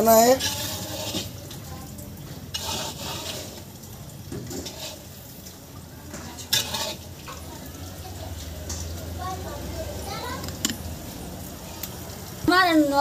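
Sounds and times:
metal spatula scraping powder in pan: 0.0s - 9.0s.

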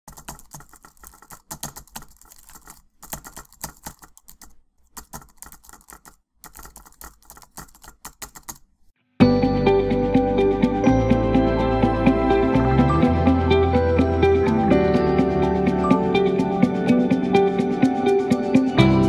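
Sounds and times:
keyboard typing clicks: 0.1s - 8.7s.

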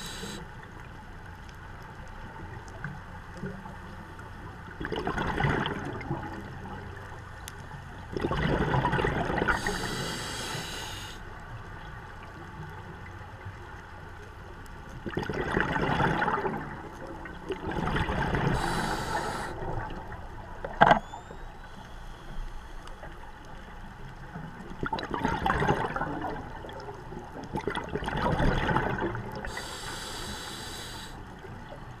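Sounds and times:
regulator hissing inhalations: 0.0s - 0.4s, 9.5s - 11.2s, 18.6s - 19.6s, 29.5s - 31.2s
exhaled bubbles rushing: 4.8s - 6.4s, 8.1s - 9.7s, 15.0s - 18.8s, 24.8s - 29.6s.

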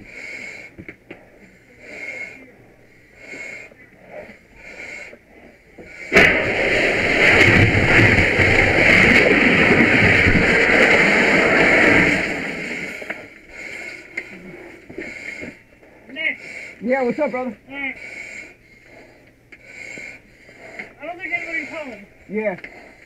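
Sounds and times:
rush of water spray: 6.1s - 13.2s.

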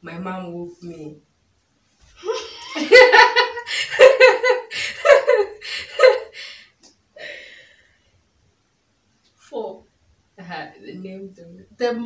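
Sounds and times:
woman laughing: 2.2s - 6.6s.

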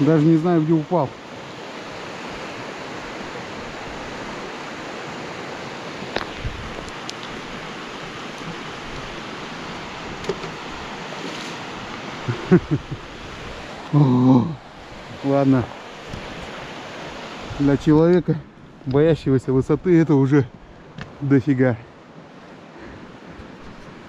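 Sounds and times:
river rapids rushing: 0.0s - 18.1s.

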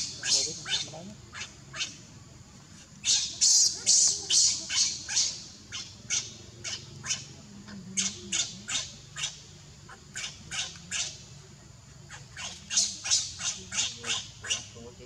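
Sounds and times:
baby monkey squeaking cries: 0.0s - 2.0s, 3.0s - 7.3s, 12.1s - 14.8s.

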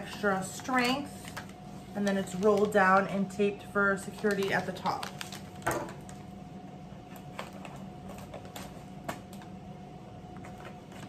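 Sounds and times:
wrapping paper crinkling: 0.1s - 3.1s, 4.0s - 6.2s.

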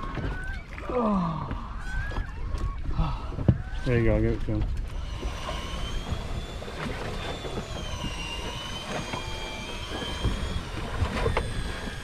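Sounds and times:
choppy water around boat: 0.0s - 12.0s
faint thin whine: 4.8s - 12.0s.

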